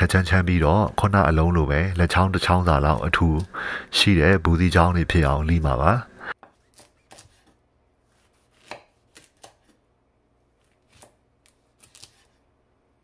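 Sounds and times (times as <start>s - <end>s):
knife cutting squash: 2.4s - 3.5s, 6.4s - 9.9s, 10.5s - 12.5s.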